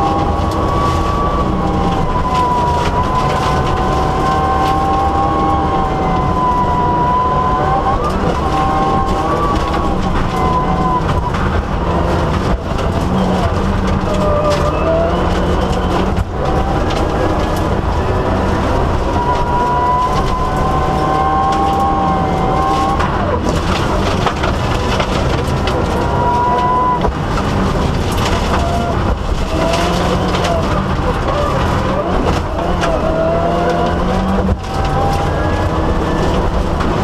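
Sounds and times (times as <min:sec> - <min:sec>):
loud road noise: 0:00.0 - 0:37.0
rally car engine running hard: 0:00.0 - 0:37.0
stones clicking on car: 0:07.4 - 0:37.0.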